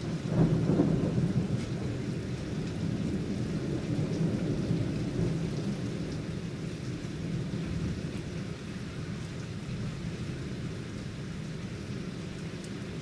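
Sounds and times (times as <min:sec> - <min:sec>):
rolling thunder: 0:00.0 - 0:08.1
steady rain: 0:00.0 - 0:13.0.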